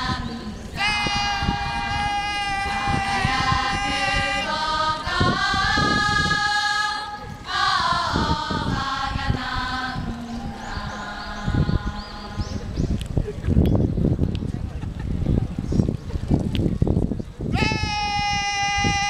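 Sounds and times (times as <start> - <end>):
group chanting in unison: 0.0 - 12.7.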